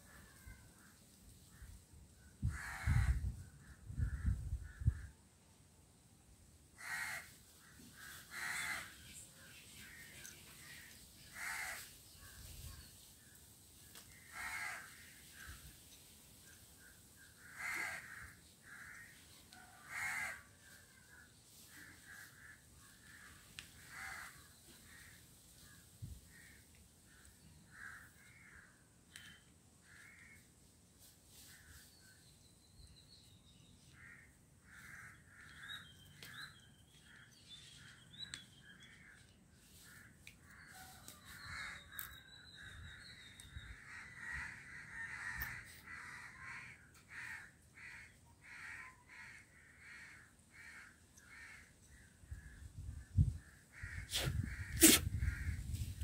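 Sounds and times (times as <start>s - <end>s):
crows cawing: 2.4s - 5.1s, 6.8s - 9.0s, 9.8s - 11.9s, 14.1s - 15.6s, 16.8s - 30.5s, 33.9s - 37.3s, 38.2s - 42.8s, 43.7s - 52.5s, 53.4s - 55.8s.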